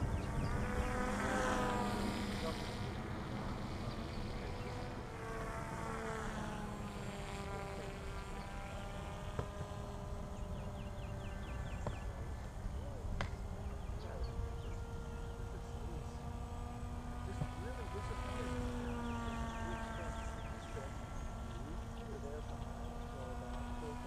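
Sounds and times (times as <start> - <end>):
distant glider motor buzz: 0.0 - 24.0.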